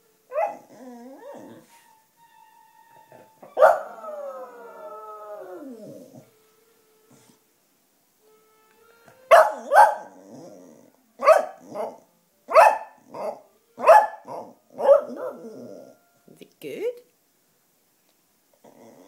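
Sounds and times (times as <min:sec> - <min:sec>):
dog barking in pairs: 0:03.6 - 0:03.9, 0:09.3 - 0:10.1, 0:11.2 - 0:15.4.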